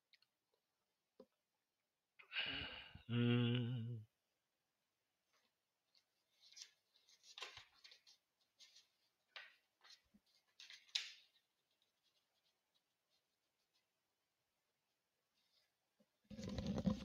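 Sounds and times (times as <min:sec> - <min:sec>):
faint clicks and rustles: 0:05.3 - 0:13.9.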